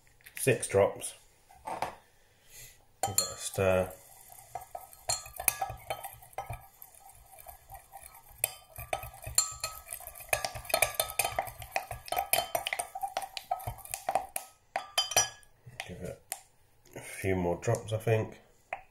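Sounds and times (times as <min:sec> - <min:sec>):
stick stirring in glass jug: 0:03.0 - 0:16.4.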